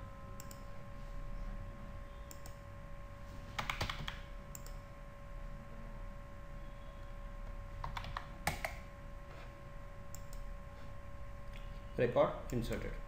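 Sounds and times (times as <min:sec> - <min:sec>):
faint electrical hum: 0:00.0 - 0:13.0
mouse clicks: 0:02.3 - 0:02.6, 0:03.6 - 0:04.8, 0:10.1 - 0:10.4
keyboard keystrokes: 0:03.6 - 0:04.8, 0:07.8 - 0:08.8.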